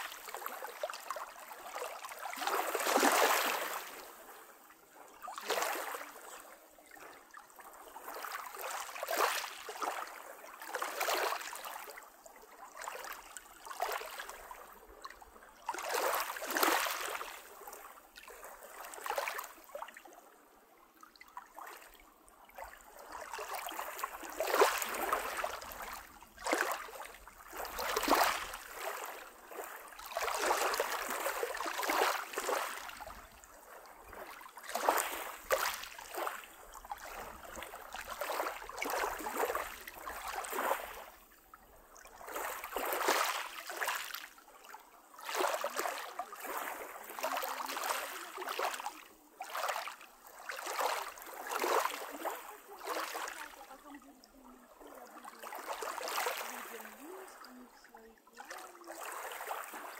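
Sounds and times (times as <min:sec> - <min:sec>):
small waves lapping on pebbles: 0:00.0 - 0:59.9.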